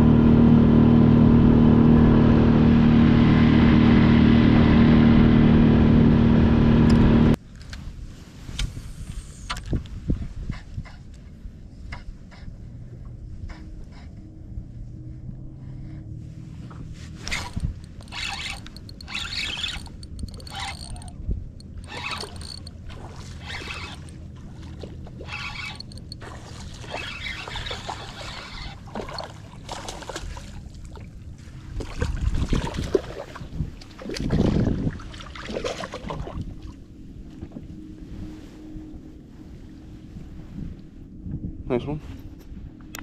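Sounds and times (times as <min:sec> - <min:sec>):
fishing reel cranking: 0:17.2 - 0:22.8, 0:23.4 - 0:24.2, 0:25.2 - 0:26.2, 0:26.9 - 0:29.3.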